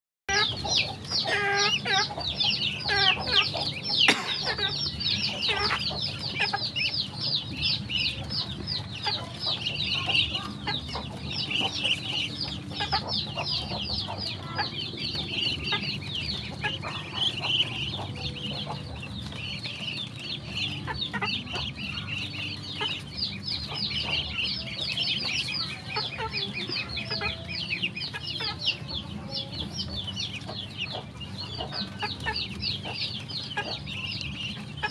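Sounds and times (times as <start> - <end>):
ducklings peeping: 0.3 - 34.9.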